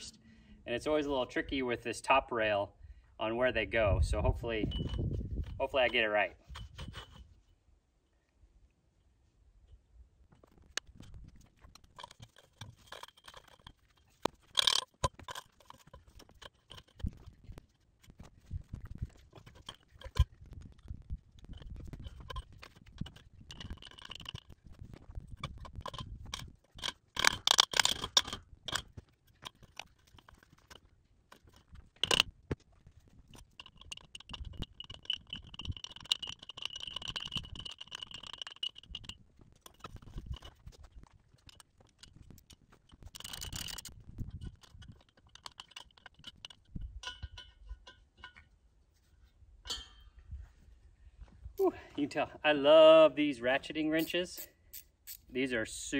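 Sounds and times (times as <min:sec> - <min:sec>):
metal scrapes and rattles: 0:10.9 - 0:20.8
wrench clinking on metal: 0:11.8 - 0:17.4, 0:21.5 - 0:24.7, 0:25.3 - 0:32.3, 0:33.3 - 0:40.7, 0:41.4 - 0:48.5, 0:49.7 - 0:50.1.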